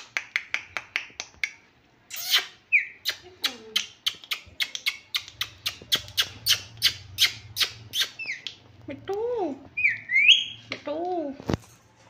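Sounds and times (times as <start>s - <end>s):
parrot squawking: 2.1s - 8.6s, 9.8s - 10.6s.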